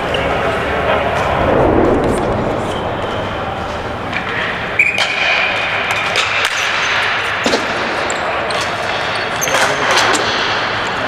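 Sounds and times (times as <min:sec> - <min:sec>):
rumble of play: 0:00.0 - 0:04.8.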